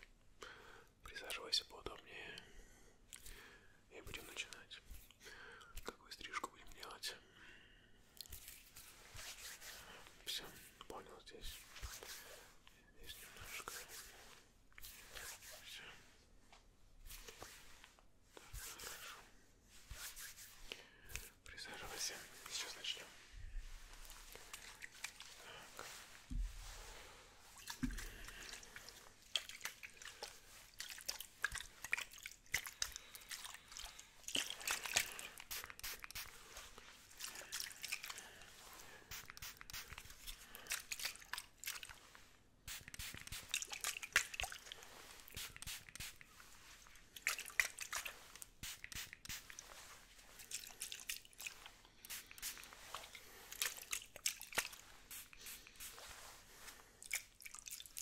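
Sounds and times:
spray bottle hissing sprays: 34.7s - 36.6s, 39.1s - 41.0s, 42.6s - 44.4s, 45.2s - 46.2s, 47.7s - 49.8s, 52.0s - 53.0s, 53.6s - 56.2s.

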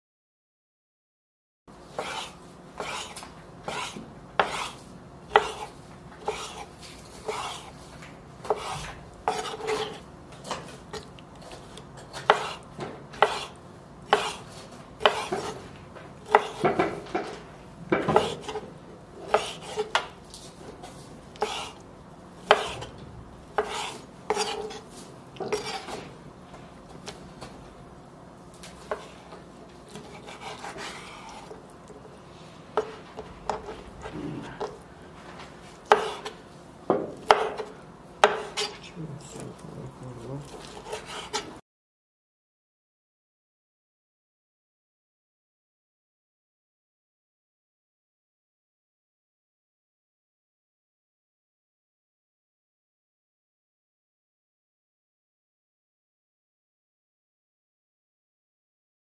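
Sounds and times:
knife slicing liver: 2.0s - 7.8s, 18.1s - 18.6s, 23.6s - 26.0s, 29.9s - 31.6s, 35.8s - 36.4s, 40.4s - 41.6s.

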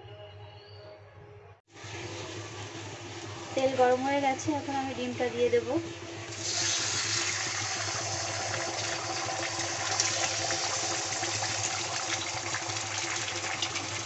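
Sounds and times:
egg sizzling in oil: 5.9s - 14.0s
oil crackling and popping: 6.3s - 14.0s.

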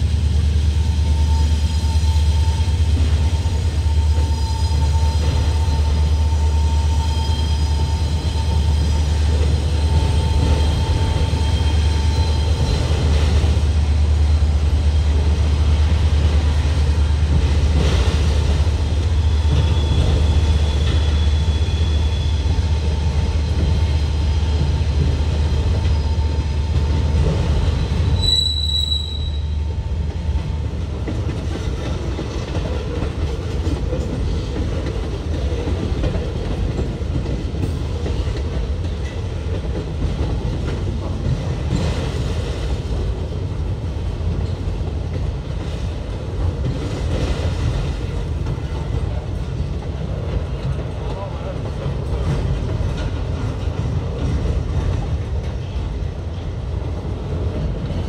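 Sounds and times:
diesel locomotive rumble: 0.0s - 58.0s
train cars rolling: 0.0s - 58.0s
wheel flange squeals: 27.9s - 29.6s.

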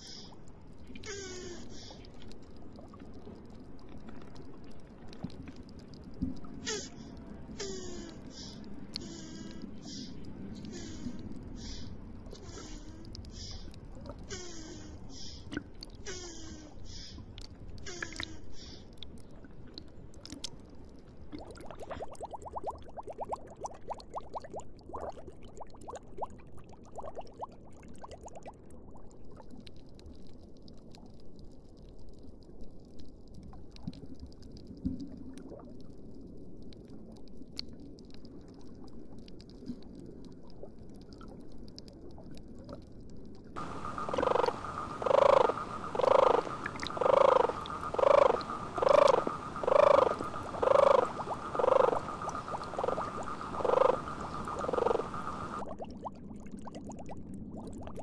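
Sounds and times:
faint water noise: 0.0s - 58.0s
animal call pulses: 43.6s - 55.6s.

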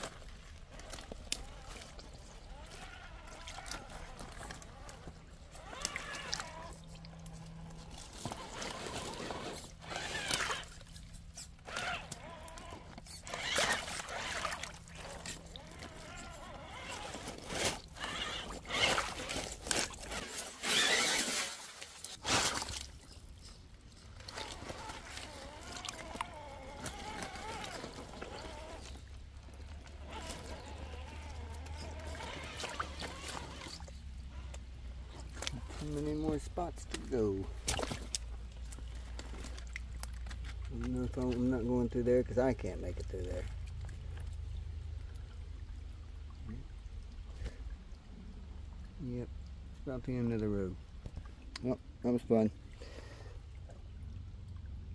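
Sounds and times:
water splashing: 0.0s - 54.9s
electric motor whining: 0.7s - 21.4s, 24.4s - 29.1s, 29.7s - 34.5s.

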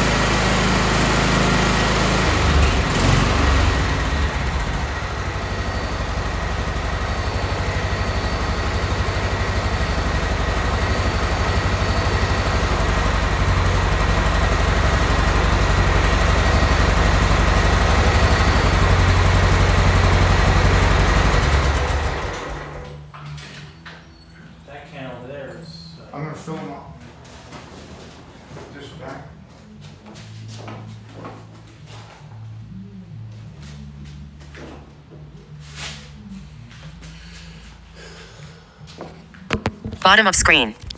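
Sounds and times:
tractor engine running: 0.0s - 22.8s.

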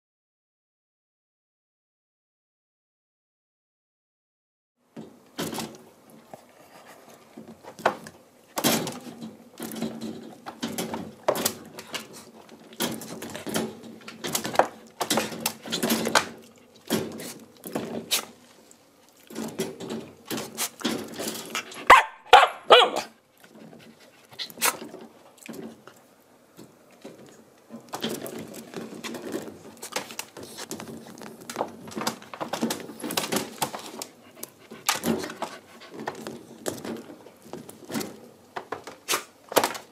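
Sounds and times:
puppy barking: 21.8s - 23.2s.

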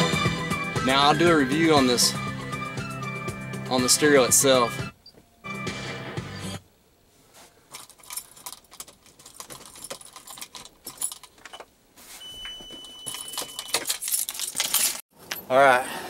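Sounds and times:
keys jangling: 7.7s - 11.6s, 12.8s - 15.5s.

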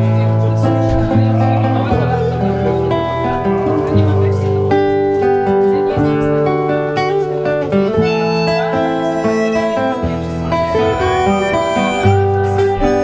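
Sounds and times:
acoustic guitar: 0.0s - 13.0s
harmonica: 7.7s - 13.0s.

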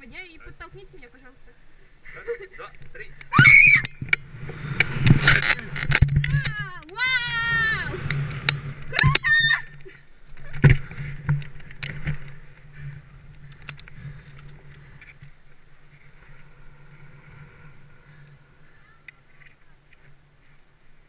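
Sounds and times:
wind rushing over microphone: 3.3s - 9.8s
person crying out: 9.0s - 9.7s.

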